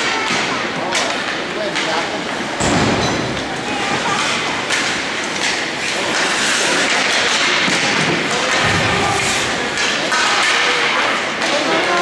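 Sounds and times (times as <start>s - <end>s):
puck and sticks hitting boards: 0.0s - 12.0s
skates hissing on ice: 5.7s - 7.6s.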